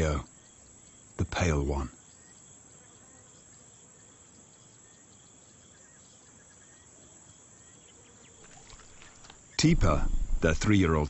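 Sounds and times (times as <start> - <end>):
insects chirping: 0.0 - 11.0
steady background hiss: 0.0 - 11.0.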